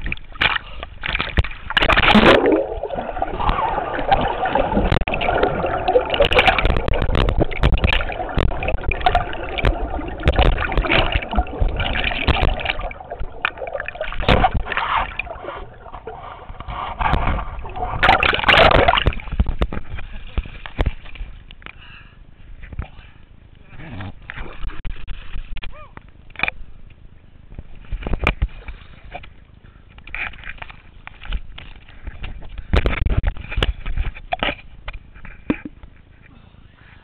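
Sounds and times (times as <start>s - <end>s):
river water splashing and gurgling: 0.0s - 20.0s.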